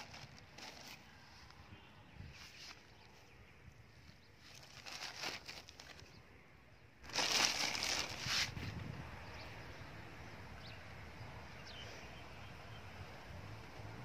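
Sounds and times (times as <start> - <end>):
rustling and scuffing: 0.0 - 1.6, 7.1 - 8.8.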